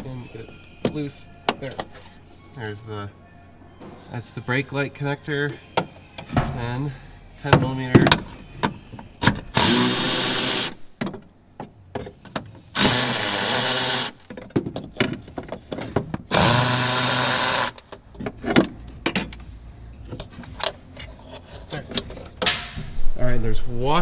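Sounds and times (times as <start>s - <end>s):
cordless drill spinning out bolts: 12.8s - 14.2s, 16.3s - 17.8s.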